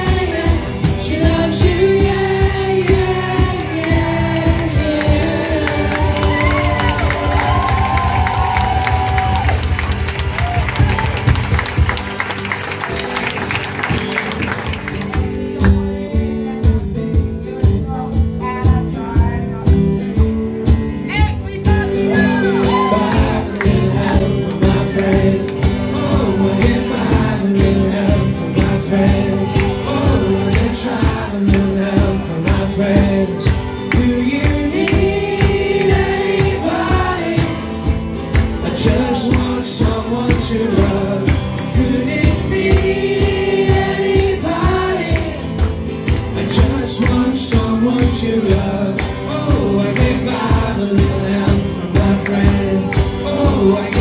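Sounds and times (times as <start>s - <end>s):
person singing: 0.0s - 9.2s, 21.0s - 54.0s
live band playing: 0.0s - 54.0s.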